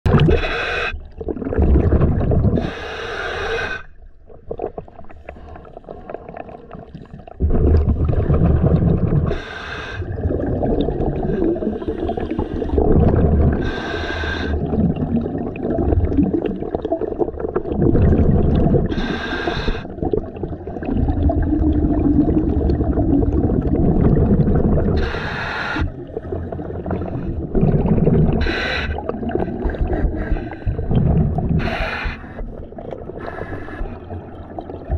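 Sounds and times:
bubbling rumble: 0.0s - 2.7s, 4.2s - 9.4s, 10.0s - 34.9s
diver breathing through regulator: 0.2s - 1.1s, 2.5s - 4.0s, 9.2s - 10.2s, 13.4s - 14.8s, 18.8s - 20.0s, 24.7s - 34.2s.

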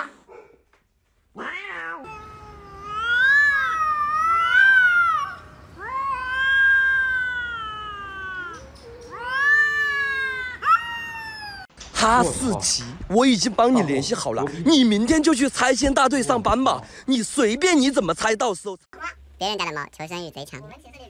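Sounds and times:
cats yowling: 1.3s - 11.7s.

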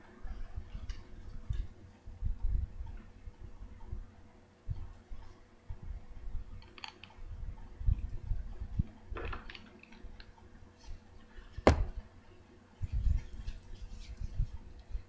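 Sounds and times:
dull bumps on a table: 11.6s - 12.0s.

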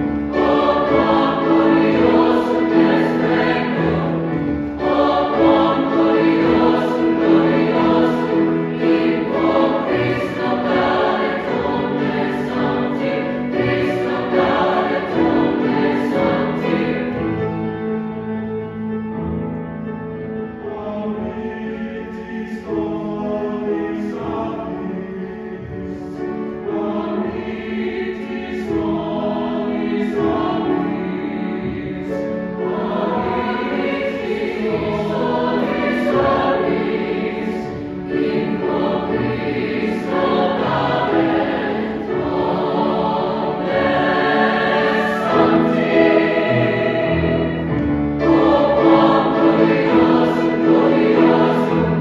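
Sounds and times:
choir singing chords: 0.0s - 52.0s.

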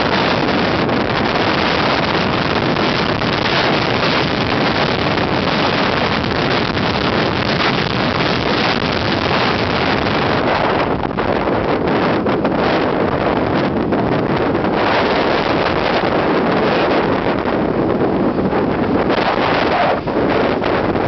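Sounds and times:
wind blowing across microphone: 0.0s - 21.0s.

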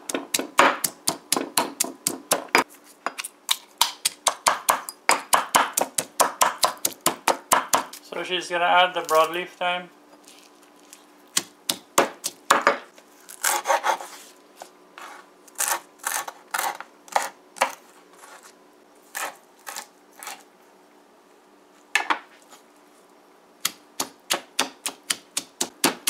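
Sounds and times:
stone pestle pounding in mortar: 0.1s - 2.6s, 3.8s - 7.9s, 11.4s - 12.8s, 24.0s - 26.0s
knife chopping on wooden board: 0.1s - 2.7s, 3.8s - 8.0s, 11.4s - 14.0s, 23.6s - 26.0s.

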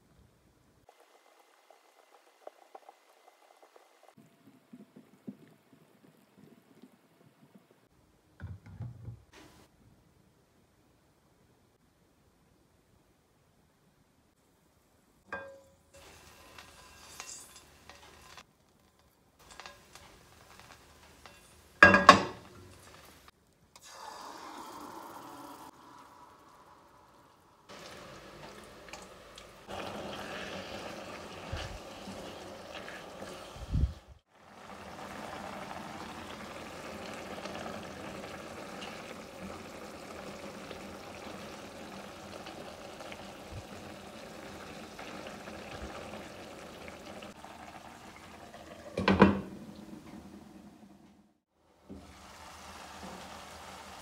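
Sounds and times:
marinade bubbling in a frying pan: 0.8s - 4.2s, 19.4s - 49.9s, 51.6s - 54.0s
glass lid clattering onto pan: 21.3s - 22.5s.

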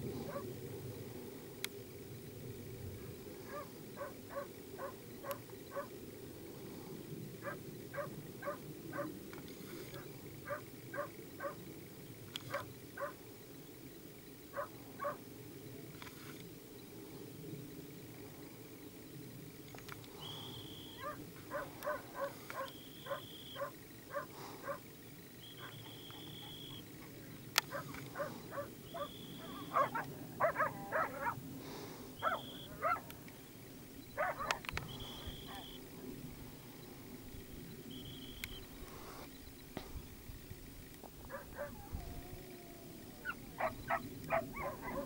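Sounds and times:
animal yelps: 27.7s - 31.4s, 32.2s - 33.0s, 34.2s - 34.6s, 41.3s - 45.0s
short animal calls: 27.7s - 31.4s.

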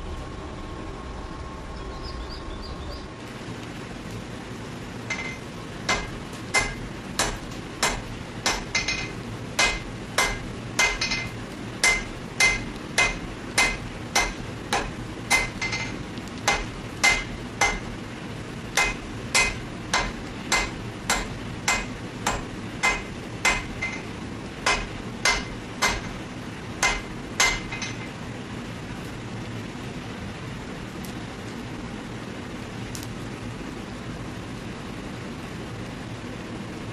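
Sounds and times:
hammer blows on metal: 5.1s - 18.0s.

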